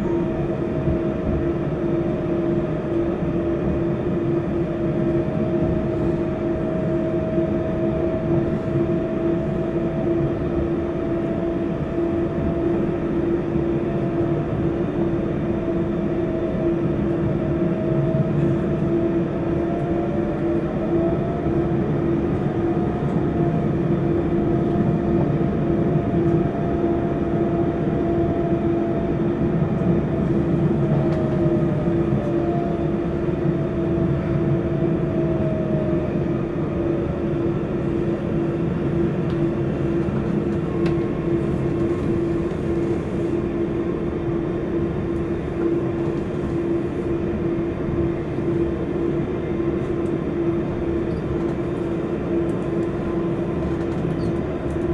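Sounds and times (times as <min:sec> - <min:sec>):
train rumble: 0:00.0 - 0:54.9.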